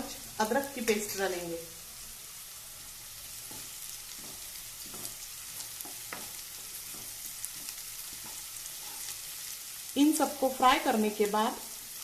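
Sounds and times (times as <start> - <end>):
onion sizzling in hot oil: 0.0 - 12.0
wooden spatula scraping a pan: 3.4 - 9.5.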